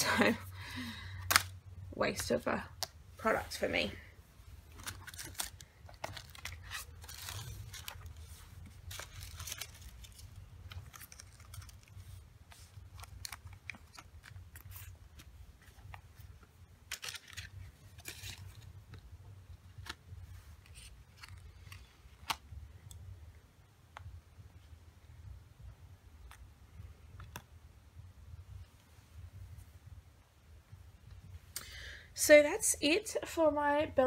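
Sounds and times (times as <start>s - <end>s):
paper and card rustling: 4.7s - 22.4s.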